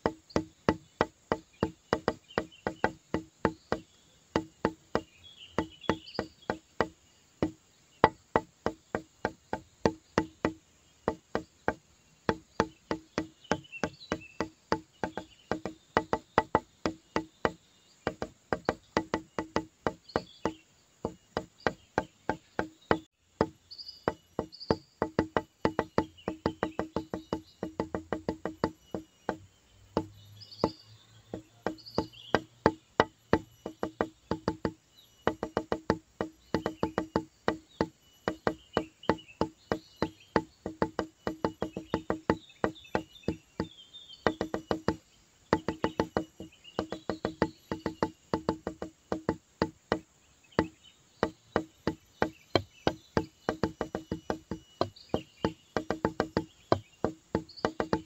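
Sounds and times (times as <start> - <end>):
fast clicking beat: 0.0 - 3.8, 4.4 - 50.0, 50.6 - 58.0.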